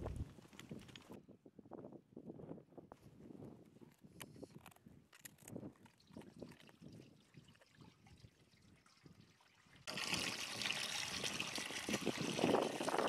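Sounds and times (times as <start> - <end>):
milk pouring and splashing: 5.8 - 13.0.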